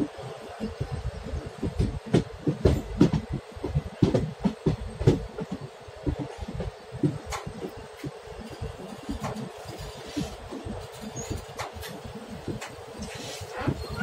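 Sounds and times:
train wheels clattering over rails: 0.5s - 14.0s.

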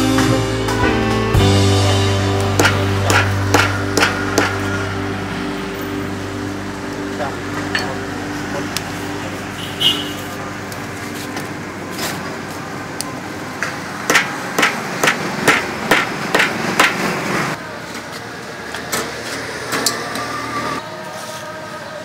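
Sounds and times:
street traffic: 0.0s - 22.0s
sharp knocks: 2.6s - 4.7s.

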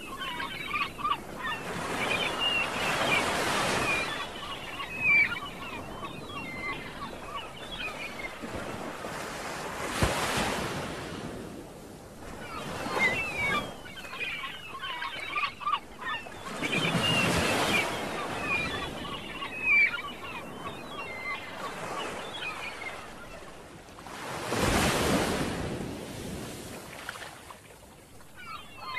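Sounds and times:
sea water sloshing and splashing: 24.0s - 27.8s.

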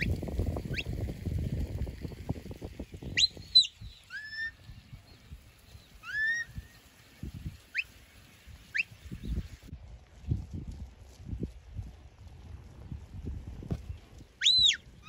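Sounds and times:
shepherd's whistles: 3.1s - 4.6s, 6.0s - 6.5s, 14.4s - 14.8s
low thumps and rumble: 9.8s - 14.3s.

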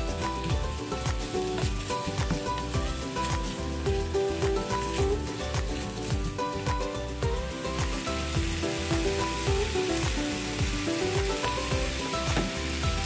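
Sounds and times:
background music with steady beat: 0.0s - 13.0s
meat sizzling in a frying pan: 0.0s - 13.0s.

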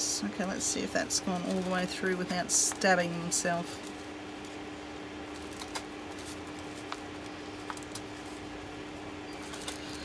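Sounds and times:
steady hum: 0.0s - 10.0s
paper handling: 5.2s - 8.6s, 9.4s - 10.0s.

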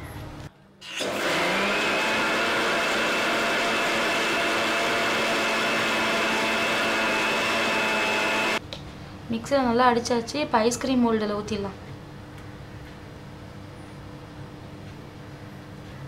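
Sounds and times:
blender motor whining: 0.8s - 8.6s.

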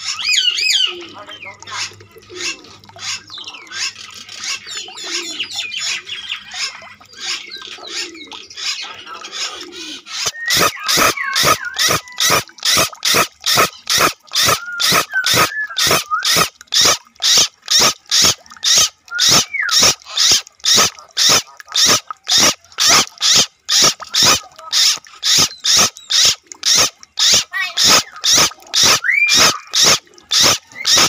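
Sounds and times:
rhythmic animal call: 9.4s - 31.0s
whistled gliding calls: 9.8s - 31.0s.

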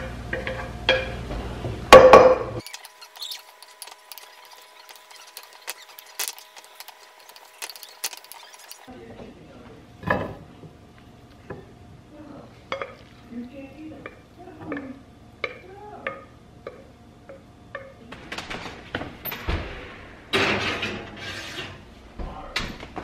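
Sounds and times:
spoon scraping glass bowl: 2.6s - 8.9s.

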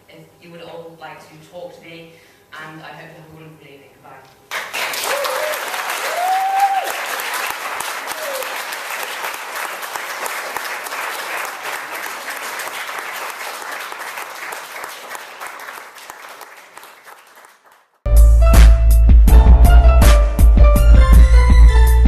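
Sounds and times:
audience applauding: 4.5s - 18.0s
cheers: 4.8s - 9.2s.

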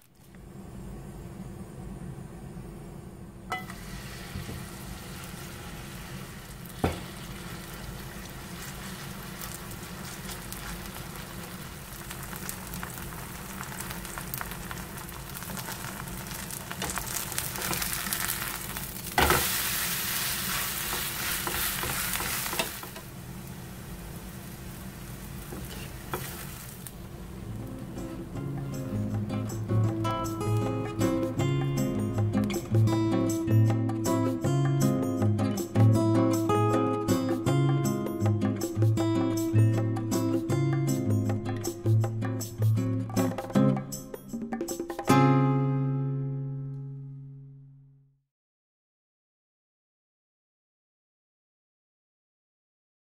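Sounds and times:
steady low hum: 0.1s - 8.0s
batter sizzling in hot oil: 3.5s - 32.6s.

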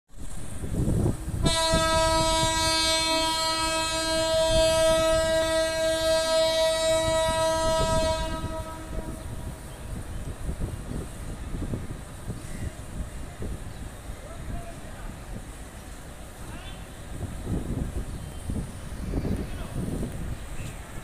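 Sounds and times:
locomotive horn blast: 1.4s - 9.6s.

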